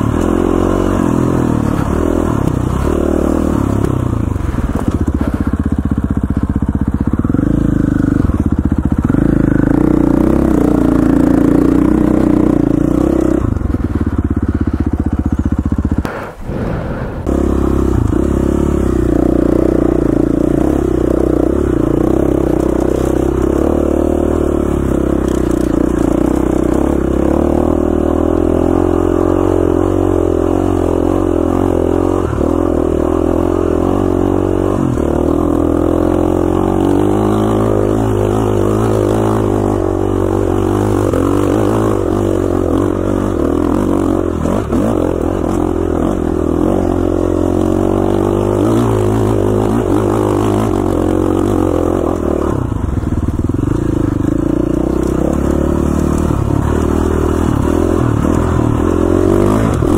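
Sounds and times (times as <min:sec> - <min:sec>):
dirt bike engine under load: 0:17.5 - 0:59.9.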